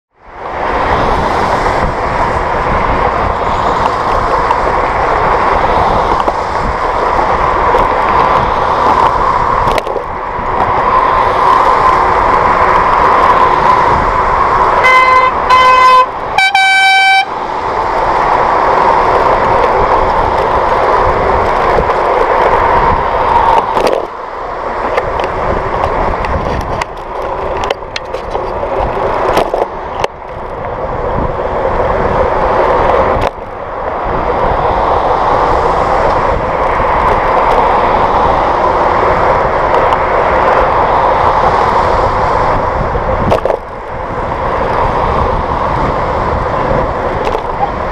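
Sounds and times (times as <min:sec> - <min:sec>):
wind and road noise: 0:00.1 - 0:47.9
high-pitched horn honk: 0:14.8 - 0:17.3
vehicle horn toots: 0:14.8 - 0:17.4.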